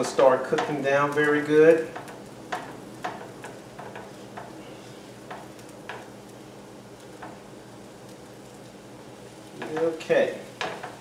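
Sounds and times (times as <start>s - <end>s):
spatula scraping and tapping pan: 0.0s - 6.2s, 7.0s - 7.4s, 9.5s - 11.0s
vegetables sizzling in skillet: 0.0s - 11.0s.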